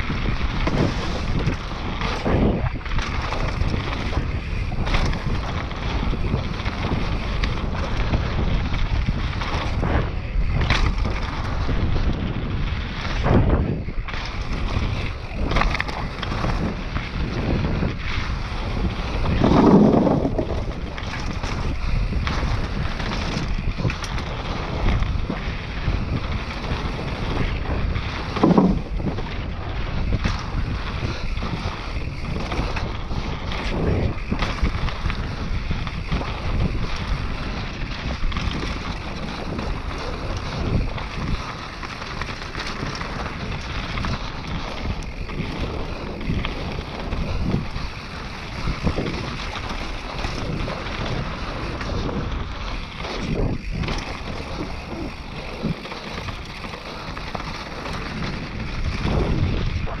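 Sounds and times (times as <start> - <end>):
bike rattling over bumps: 0.0 - 60.0
tyres running on dirt: 0.0 - 60.0
wind rushing over microphone: 0.0 - 60.0.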